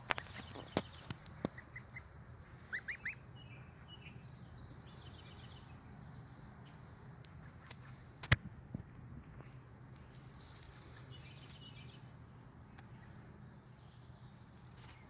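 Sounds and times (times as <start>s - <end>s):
goslings peeping: 0.0s - 4.2s.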